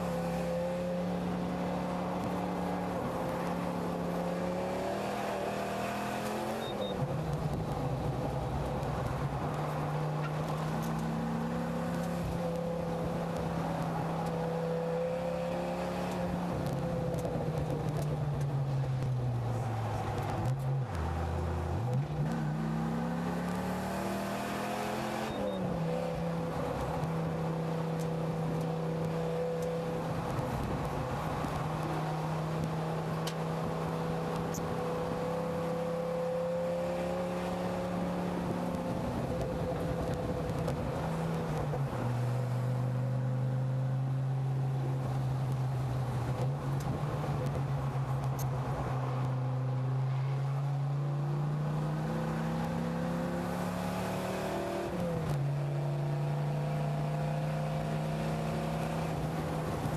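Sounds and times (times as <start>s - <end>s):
engine revving: 4.1s - 6.9s, 20.4s - 26.2s, 51.3s - 59.9s.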